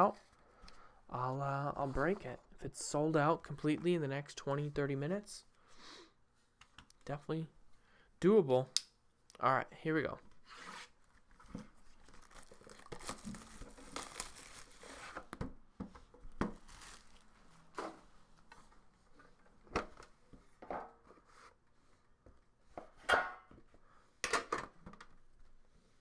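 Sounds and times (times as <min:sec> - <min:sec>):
shrink wrap crinkling and tearing: 0:11.8 - 0:15.2, 0:16.4 - 0:17.3.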